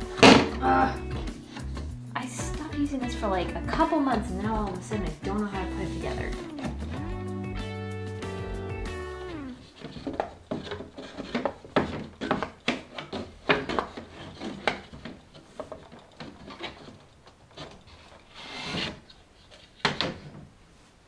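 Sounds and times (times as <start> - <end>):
wood rubbing scrape: 0.0 - 2.0, 3.7 - 7.1, 9.2 - 19.8
wood-on-wood knocks and clatters: 9.6 - 18.2, 19.6 - 20.5.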